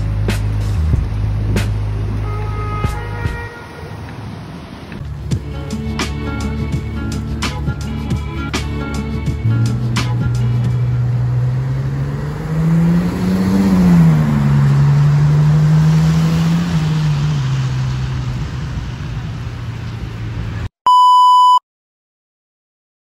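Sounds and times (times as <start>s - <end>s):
car engine revving: 0.0s - 20.6s
short electronic beep: 20.8s - 21.6s.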